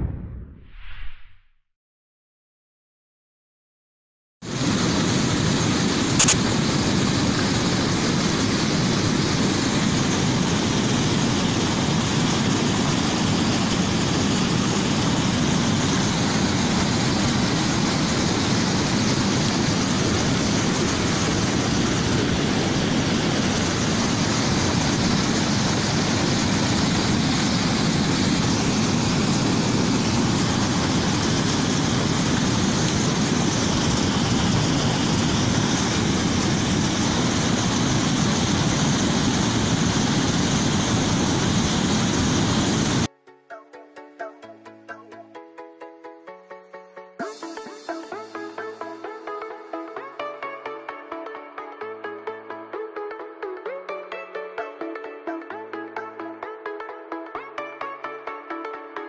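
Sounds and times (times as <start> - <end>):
water rushing over dam spillway: 4.5 - 43.1.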